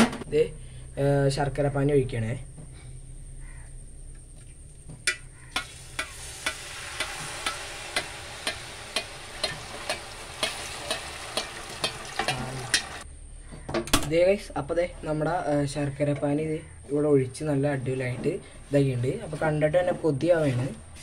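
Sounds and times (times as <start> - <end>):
spatula scraping metal pan: 5.1 - 13.0
syrup sizzling in hot pan: 5.5 - 13.0.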